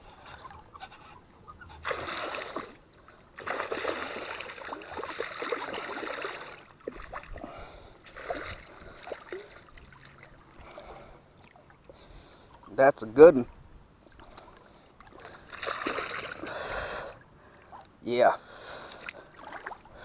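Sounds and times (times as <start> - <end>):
fish splashing at water surface: 1.8 - 2.8, 3.4 - 10.9, 14.2 - 16.5.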